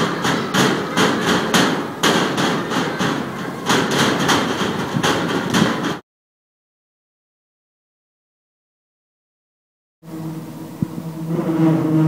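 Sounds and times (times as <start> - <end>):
sharp ringing bangs: 0.0 - 6.0.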